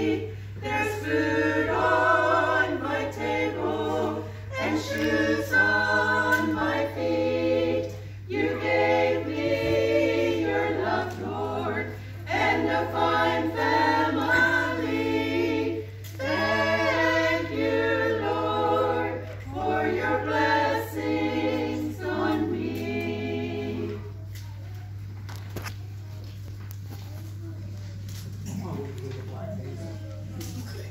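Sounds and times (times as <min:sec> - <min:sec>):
women's choir singing unaccompanied: 0:00.0 - 0:24.2.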